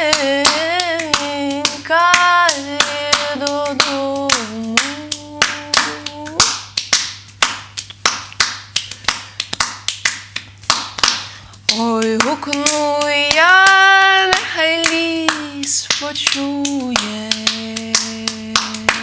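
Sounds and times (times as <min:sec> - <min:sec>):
woman singing: 0:00.0 - 0:06.6, 0:11.6 - 0:19.0
hand claps: 0:00.0 - 0:19.0.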